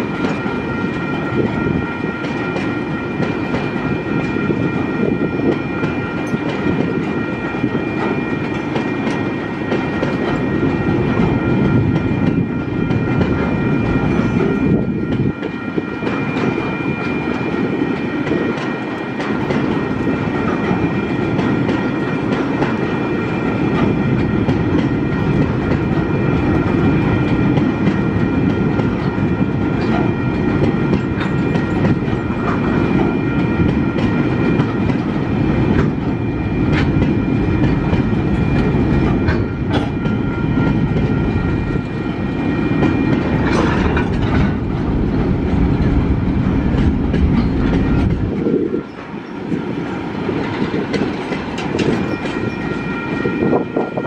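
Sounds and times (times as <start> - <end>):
high ringing tones: 0.0 - 19.2, 47.4 - 54.0
freight train rumbling past: 0.0 - 54.0
wheels clacking over rail joints: 18.2 - 41.2, 42.8 - 53.1.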